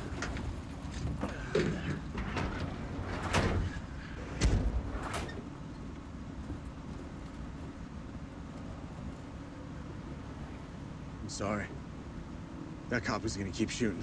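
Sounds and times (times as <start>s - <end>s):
van doors clunking: 0.0s - 9.7s
heavy door slam: 1.8s - 5.5s.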